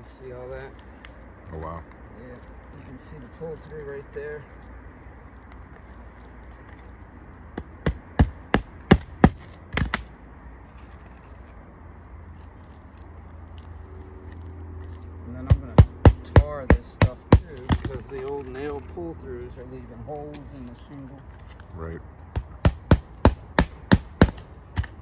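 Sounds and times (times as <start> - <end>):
hammer striking roof shingles: 7.6 - 10.1, 15.5 - 18.2, 22.3 - 25.0.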